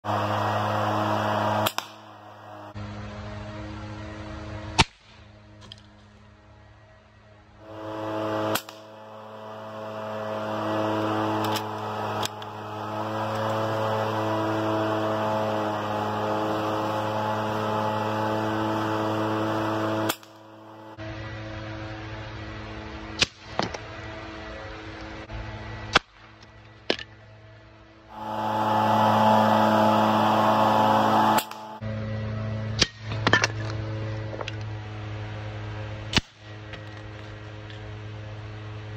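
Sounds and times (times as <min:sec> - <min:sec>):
pellets striking targets: 0:01.2 - 0:02.7, 0:20.0 - 0:20.5.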